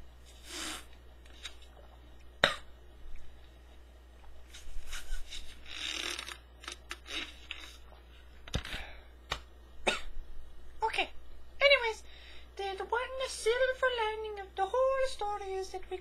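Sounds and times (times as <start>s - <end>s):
sucking through a straw: 0.3s - 2.0s, 4.5s - 7.9s.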